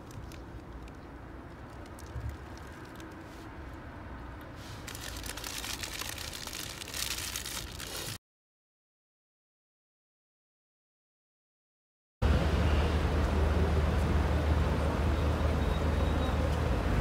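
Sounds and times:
paper napkin crinkling: 4.6 - 8.2.

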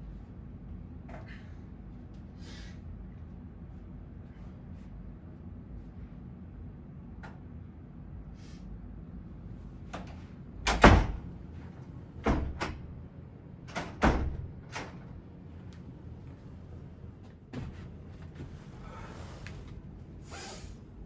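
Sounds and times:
knocks and thuds on wooden door: 12.2 - 12.8.

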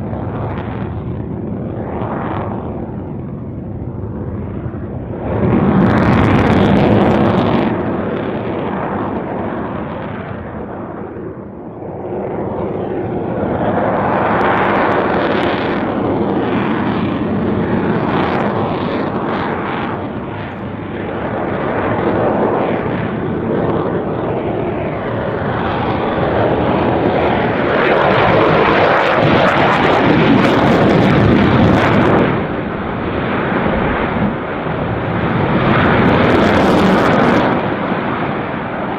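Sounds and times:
fighter jet engine rumble: 0.0 - 38.9
jet engine crackle: 0.0 - 38.9.

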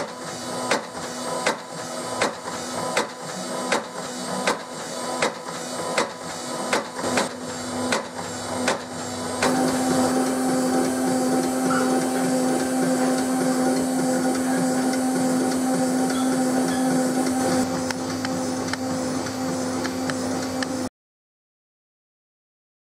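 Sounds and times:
small electric motor humming: 9.5 - 20.9.

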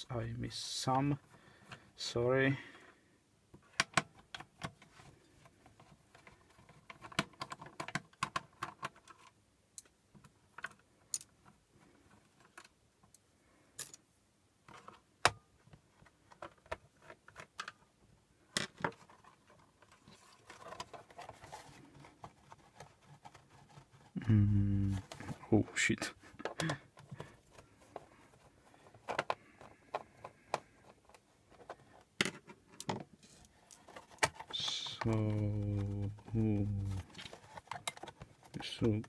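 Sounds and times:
laptop handling noise: 26.3 - 39.0.

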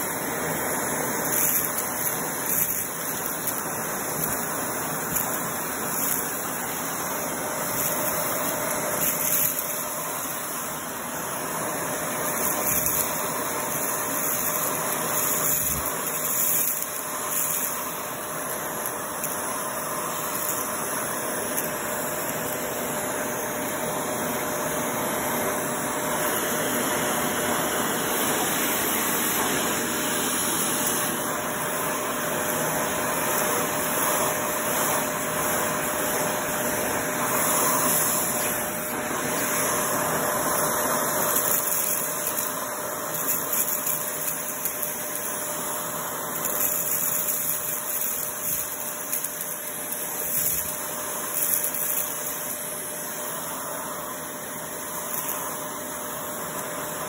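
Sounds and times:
vacuum cleaner motor running: 0.0 - 57.0
gravel rattling up vacuum tube: 15.2 - 17.7.

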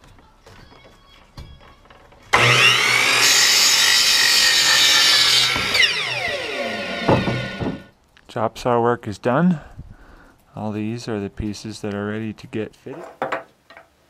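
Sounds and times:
miter saw cutting wood: 2.3 - 7.9.

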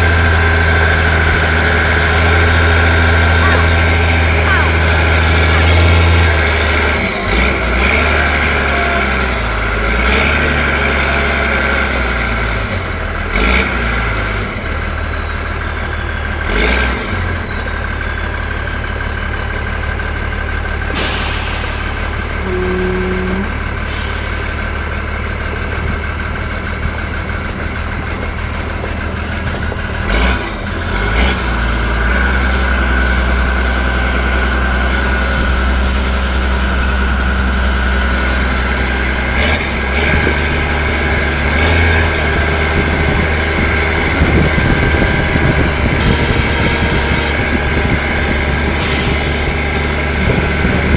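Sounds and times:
diesel truck engine running: 0.0 - 50.9
short loud hiss: 21.0 - 22.0.

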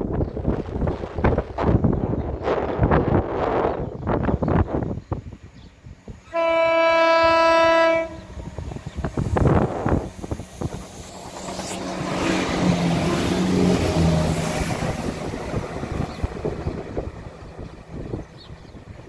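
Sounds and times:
diesel train engines: 0.0 - 19.0
train horn: 6.3 - 8.5.

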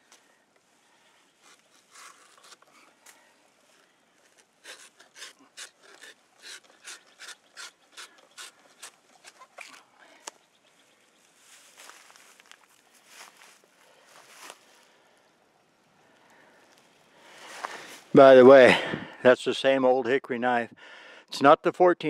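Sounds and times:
knife scraping wood: 1.4 - 9.9.

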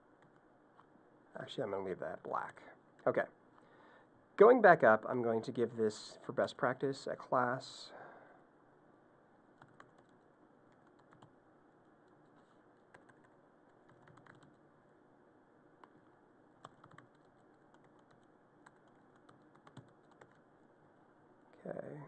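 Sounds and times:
keyboard typing: 9.6 - 11.3, 12.0 - 14.6, 15.8 - 20.5.

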